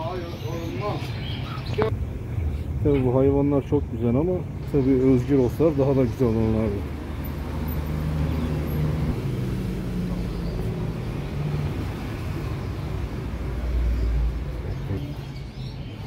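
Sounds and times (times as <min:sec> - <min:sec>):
traffic rumble: 0:00.0 - 0:16.0
car passing: 0:04.8 - 0:15.0.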